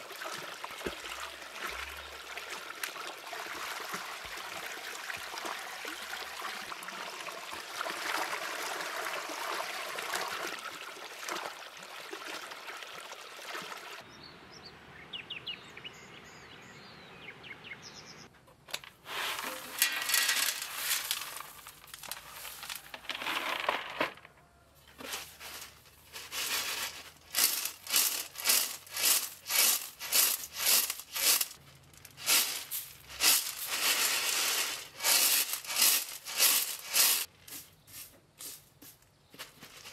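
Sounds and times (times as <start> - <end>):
grain poured into metal tray: 19.1 - 24.1, 25.0 - 38.6
grain rattling in a tray: 19.1 - 24.3, 25.0 - 38.6.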